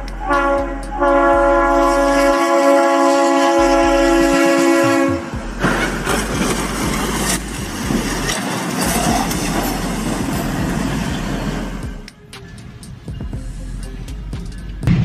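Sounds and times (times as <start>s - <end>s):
locomotive air horn: 0.0s - 7.4s
metal grinding and scraping: 5.5s - 12.0s.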